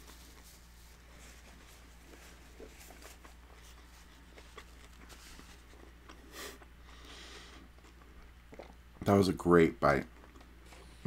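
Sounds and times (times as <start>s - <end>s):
paper napkin rustling: 0.0s - 5.8s
wet mouth clicks chewing: 7.6s - 8.8s.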